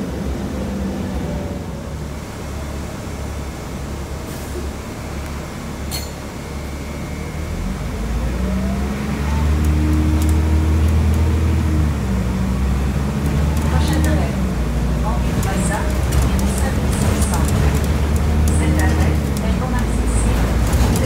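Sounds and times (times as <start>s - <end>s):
bus engine rumble: 0.0s - 21.0s
rising drivetrain whine: 6.4s - 15.0s.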